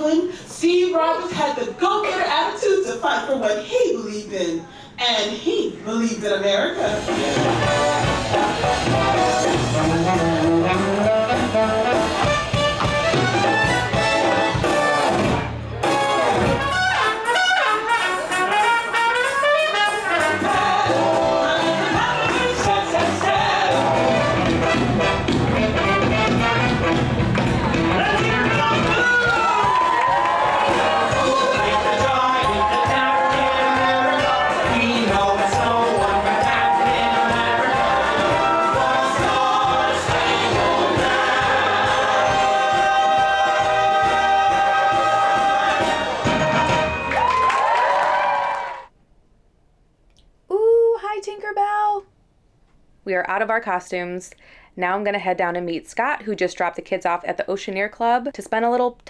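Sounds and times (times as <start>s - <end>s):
brassy stage-show music: 6.7s - 48.4s
trumpet playing lead: 7.4s - 47.1s
voices singing in harmony: 20.2s - 24.7s, 30.0s - 47.0s.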